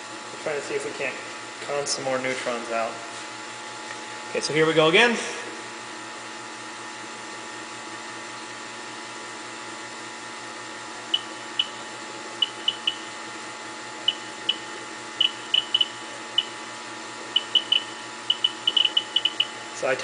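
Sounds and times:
steady hum: 0:00.0 - 0:20.0
short high beeps: 0:15.2 - 0:16.5, 0:17.4 - 0:19.5.

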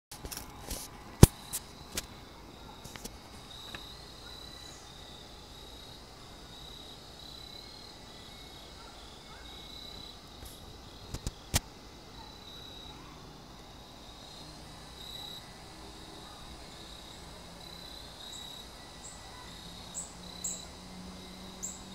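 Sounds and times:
crickets chirping: 0:00.2 - 0:21.9
sharp clicks: 0:10.5 - 0:11.7.

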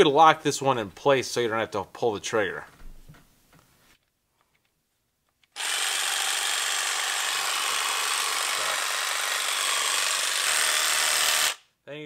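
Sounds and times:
jigsaw motor whirring: 0:05.6 - 0:11.6.

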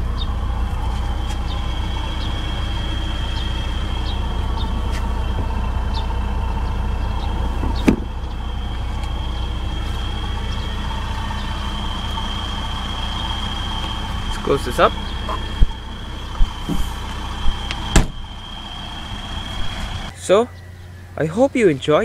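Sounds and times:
car engine idling: 0:00.0 - 0:22.0
high whine: 0:00.0 - 0:22.0.

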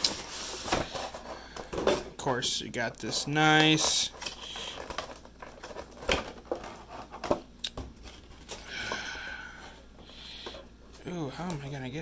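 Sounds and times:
plastic crinkling: 0:03.0 - 0:07.4.

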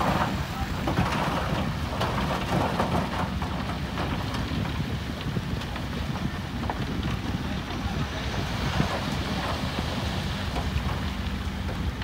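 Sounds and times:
stones rattling and clattering: 0:00.0 - 0:05.9
diesel engine running: 0:00.0 - 0:12.0.

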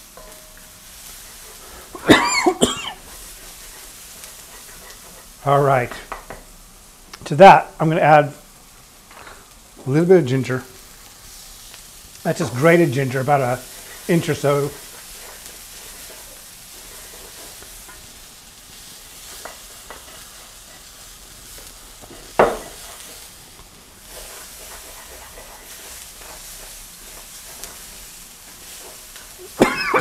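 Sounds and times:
vegetables sizzling in a wok: 0:00.0 - 0:30.0
spatula scraping: 0:02.9 - 0:05.5, 0:12.3 - 0:18.2, 0:18.8 - 0:23.4, 0:24.0 - 0:30.0.

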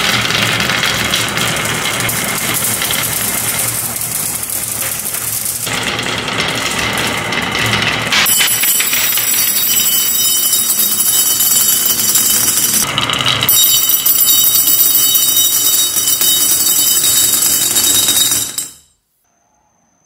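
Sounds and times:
marbles rattling down wooden track: 0:00.0 - 0:18.9
marbles clinking into ceramic cup: 0:01.0 - 0:05.7, 0:08.1 - 0:18.9.

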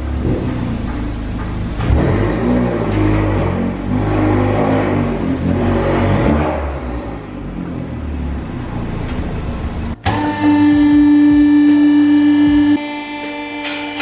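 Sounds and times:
car engine revving: 0:00.0 - 0:13.6
steady hum: 0:08.4 - 0:14.0.

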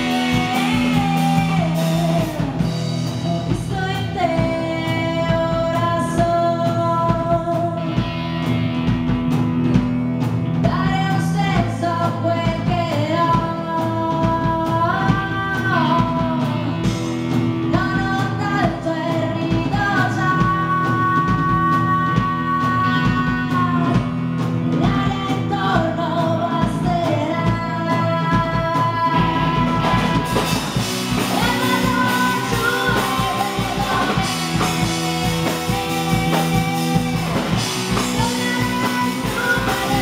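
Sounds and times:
woman singing long held notes: 0:00.0 - 0:07.9, 0:24.8 - 0:30.5, 0:31.2 - 0:40.0
rock band playing: 0:00.0 - 0:40.0.

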